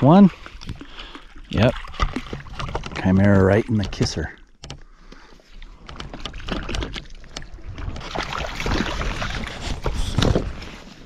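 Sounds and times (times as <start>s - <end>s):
fish splashing in water: 8.0s - 9.9s.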